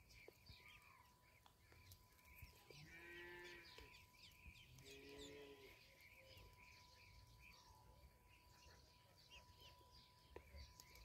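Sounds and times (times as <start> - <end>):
ducklings peeping: 0.0 - 11.0.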